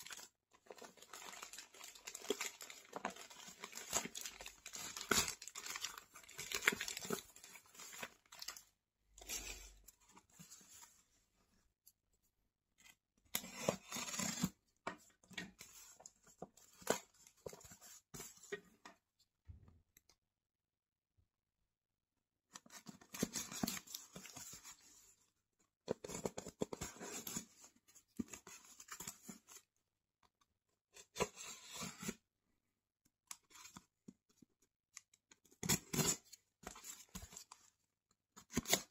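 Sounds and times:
plastic bag crinkling and tearing: 0:00.0 - 0:08.5.

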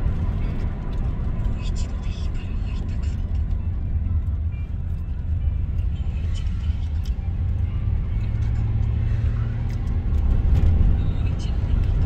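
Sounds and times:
car road and engine rumble: 0:00.0 - 0:12.0.

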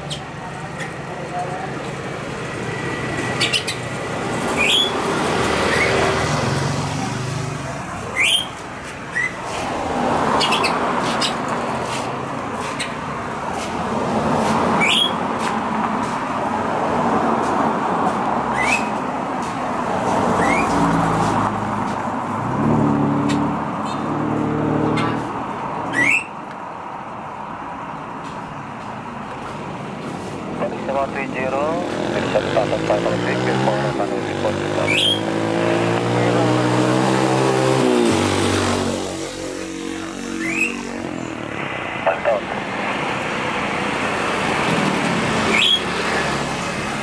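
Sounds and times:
vehicles passing: 0:00.0 - 0:47.0
bird chirping: 0:03.4 - 0:03.9, 0:04.5 - 0:05.0, 0:08.2 - 0:09.4, 0:34.8 - 0:35.3, 0:45.5 - 0:45.9.

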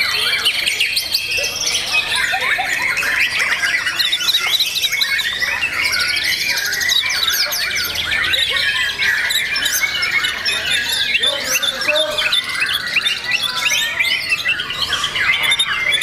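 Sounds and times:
harsh bird chattering calls: 0:00.0 - 0:16.0
songbird whistles and trills: 0:00.0 - 0:16.0.

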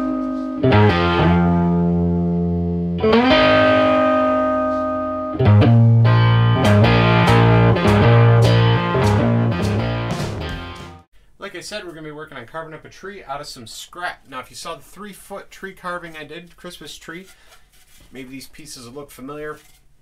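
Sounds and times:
held chords ringing: 0:00.0 - 0:11.0
pulsing rhythm with percussive hits: 0:06.1 - 0:11.0.

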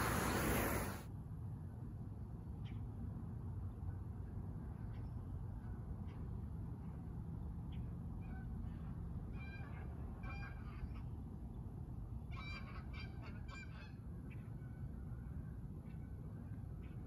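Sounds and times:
geese honking: 0:00.0 - 0:01.0
low background noise: 0:00.0 - 0:17.0.

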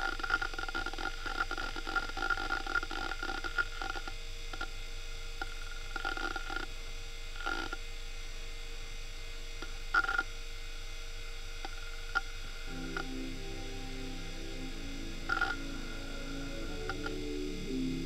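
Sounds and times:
steady hum: 0:08.2 - 0:18.0.

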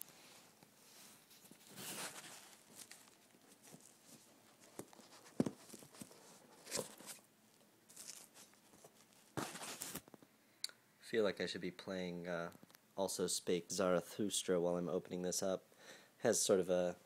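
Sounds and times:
packaging rustle: 0:01.2 - 0:07.2, 0:07.9 - 0:10.2.

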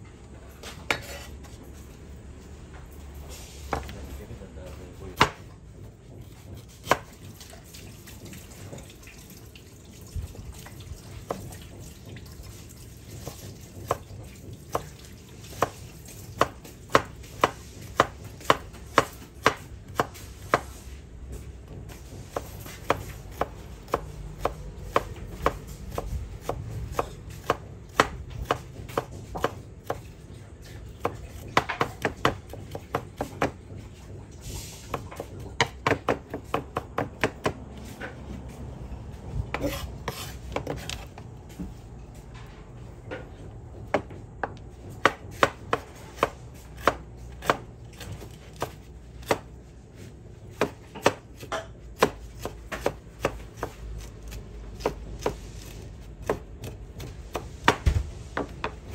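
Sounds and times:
knife chopping on wooden board: 0:00.6 - 0:01.6, 0:03.7 - 0:04.0, 0:05.1 - 0:05.5, 0:06.2 - 0:07.3, 0:15.5 - 0:20.8, 0:21.9 - 0:34.2, 0:34.9 - 0:38.6, 0:39.5 - 0:41.7, 0:43.8 - 0:58.8.

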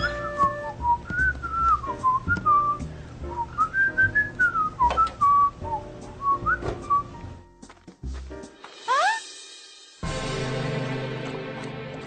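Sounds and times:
cartoon character whistling: 0:00.0 - 0:00.8, 0:08.9 - 0:09.2.

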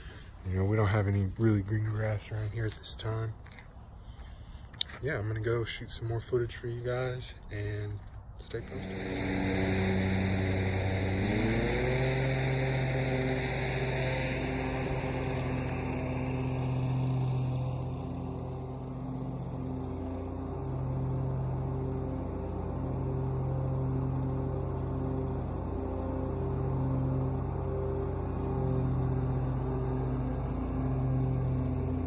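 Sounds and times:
small petrol engine running: 0:08.5 - 0:32.0.

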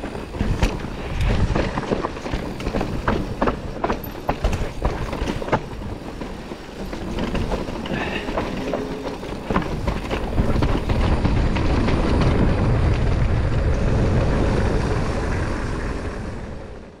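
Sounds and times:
bike knocking and rattling: 0:00.0 - 0:16.0
wind on microphone: 0:07.0 - 0:17.0.

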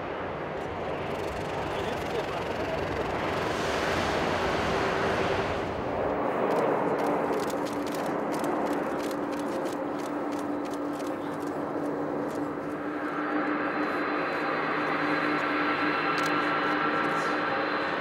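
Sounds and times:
jet engines: 0:00.0 - 0:18.0
landing airliner engine hiss: 0:00.1 - 0:18.0.

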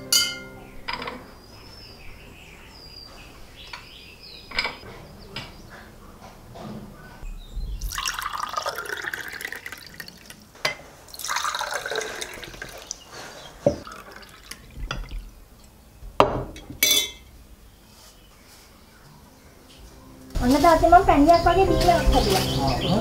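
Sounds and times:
glasses clinking: 0:00.0 - 0:01.2, 0:04.5 - 0:04.8, 0:16.8 - 0:17.3
drink pouring into glasses: 0:07.8 - 0:10.5, 0:11.1 - 0:15.4.

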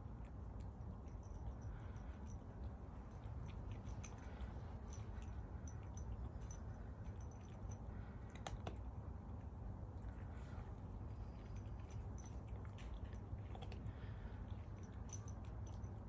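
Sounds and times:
cat chewing dry kibble: 0:00.0 - 0:16.0
low background rumble: 0:00.0 - 0:16.0.

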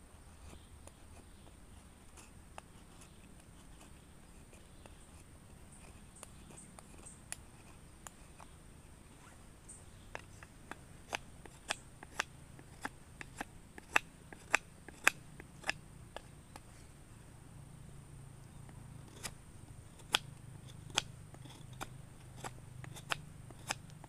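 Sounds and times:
knife blade cutting wood: 0:10.1 - 0:16.3, 0:19.0 - 0:24.0.

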